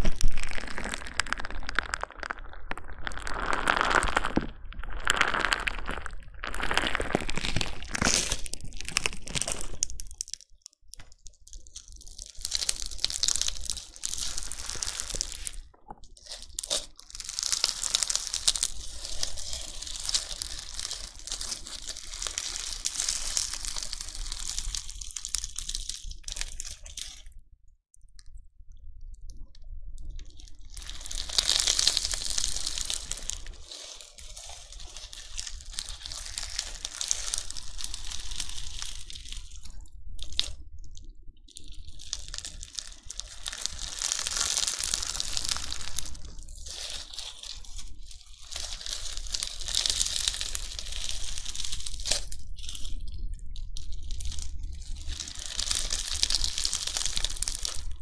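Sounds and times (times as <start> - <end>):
slime beads crackling and crunching: 0.0 - 27.4, 30.0 - 58.0.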